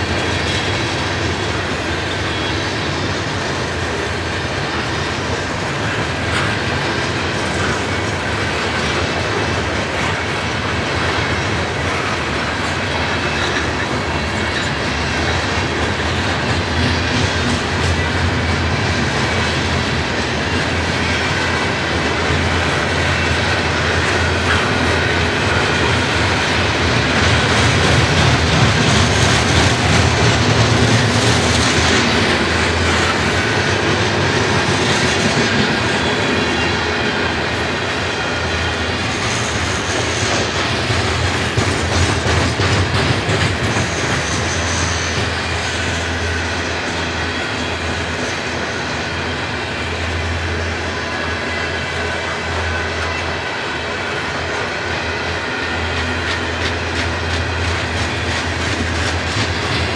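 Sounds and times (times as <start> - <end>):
freight train rumbling past: 0.0 - 59.9
wheels clacking over rail joints: 3.7 - 47.7, 55.7 - 59.9.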